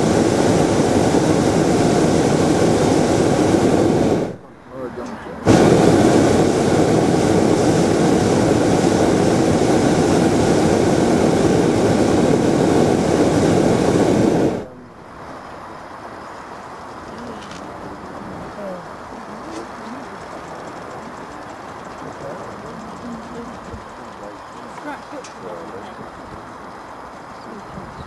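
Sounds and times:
propane burner firing: 0.0s - 4.4s, 5.4s - 14.8s.

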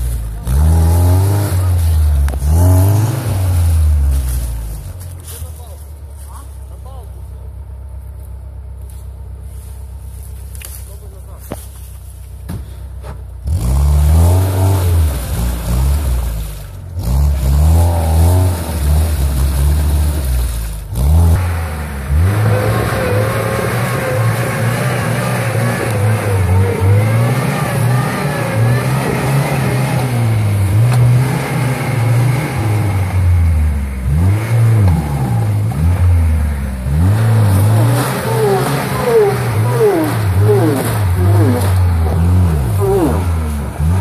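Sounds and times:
car engine revving under load: 0.0s - 5.3s, 12.3s - 44.0s.

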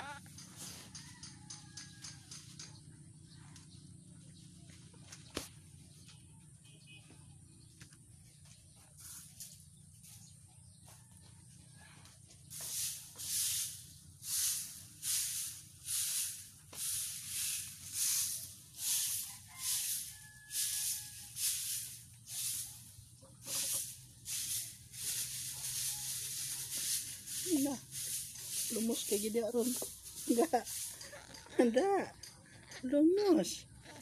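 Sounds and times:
rhythmic scratchy rustling: 21.4s - 33.5s.

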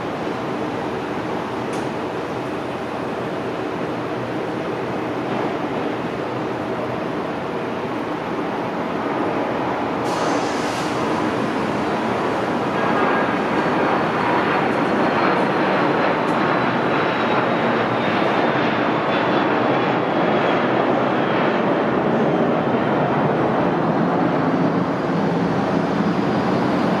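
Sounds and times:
jet engines roaring with high whine: 0.0s - 27.0s.

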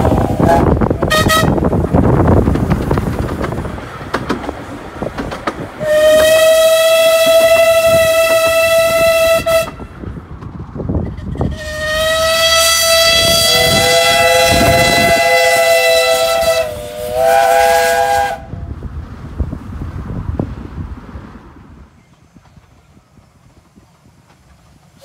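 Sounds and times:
steam locomotive whistles: 0.0s - 1.7s, 5.8s - 10.0s, 11.4s - 18.6s.

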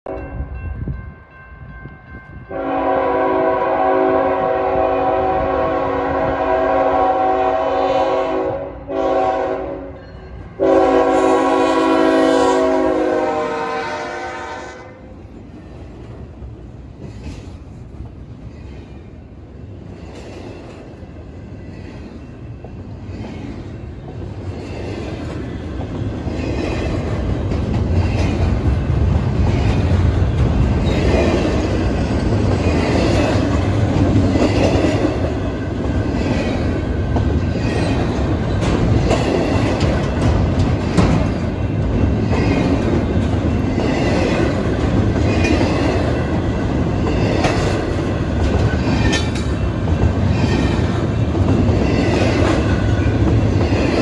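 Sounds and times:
train wheels rumbling on rails: 0.0s - 54.0s
train air horn blasts: 2.5s - 10.0s, 10.6s - 15.2s.

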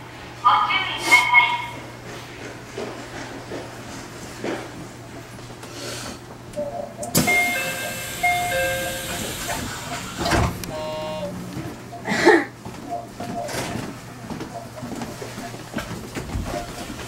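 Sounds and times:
electronic chime: 6.6s - 9.6s.

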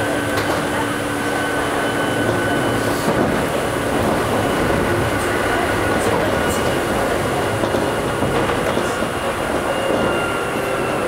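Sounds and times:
electric train rumbling: 0.0s - 11.0s.

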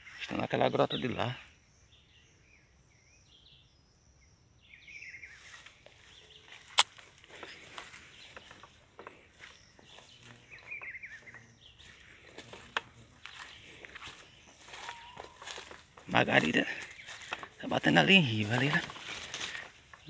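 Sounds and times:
small bird chirping: 0.0s - 20.0s
footsteps crunching through dry leaves: 5.2s - 20.0s
branches brushing: 5.3s - 20.0s
twig snapping: 6.6s - 7.4s.

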